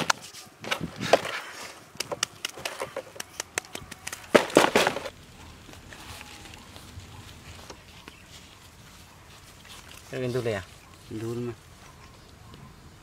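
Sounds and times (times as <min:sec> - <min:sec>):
crisp clicks and crackles of handling: 0:00.0 - 0:07.0.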